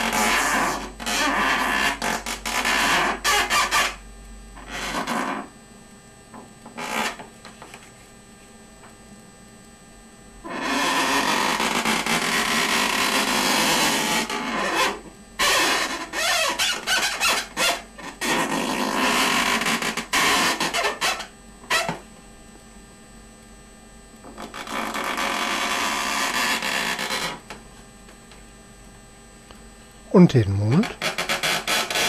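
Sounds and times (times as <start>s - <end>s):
marker rubbing on balloon: 0.0s - 3.9s, 10.5s - 22.0s.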